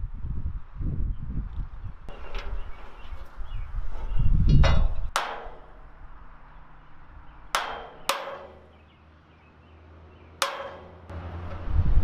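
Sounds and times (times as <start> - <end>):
metal punch striking steel: 4.0 - 6.1, 7.5 - 8.8, 10.4 - 11.6.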